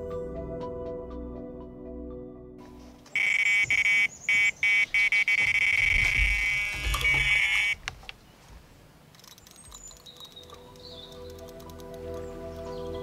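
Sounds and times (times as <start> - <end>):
high-pitched bite alarm tone: 3.2 - 7.8.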